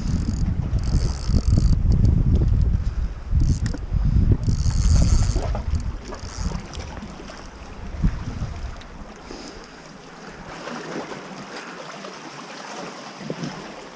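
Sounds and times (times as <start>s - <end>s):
wind buffeting microphone: 0.0s - 9.1s
sea washing against rocks: 4.0s - 13.9s.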